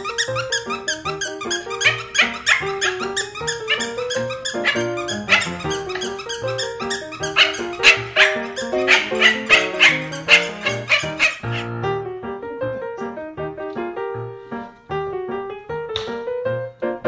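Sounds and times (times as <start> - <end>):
upbeat music with plucked notes: 0.0 - 11.7.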